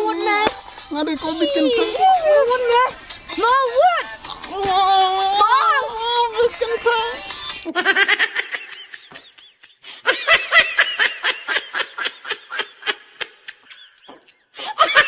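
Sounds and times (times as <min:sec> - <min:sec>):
women laughing: 0:01.2 - 0:06.6, 0:07.4 - 0:15.0.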